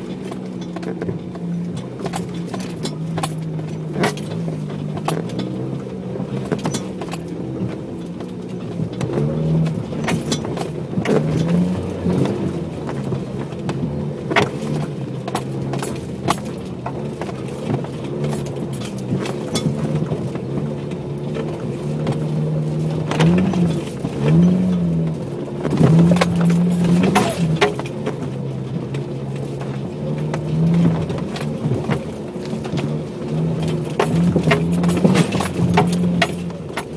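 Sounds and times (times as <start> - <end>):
car engine running: 0.0 - 36.9
sharp knocks and clatters: 21.3 - 36.9.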